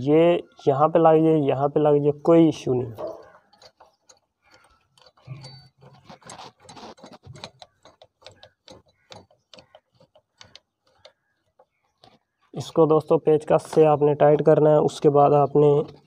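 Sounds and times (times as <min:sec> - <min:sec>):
screwdriver clicking on metal: 0:03.1 - 0:12.2.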